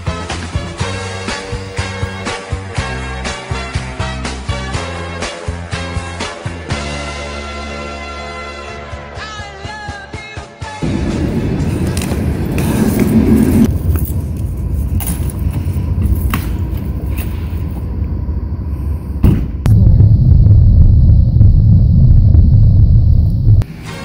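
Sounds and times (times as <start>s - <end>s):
car driving rumble from inside: 19.7s - 23.6s.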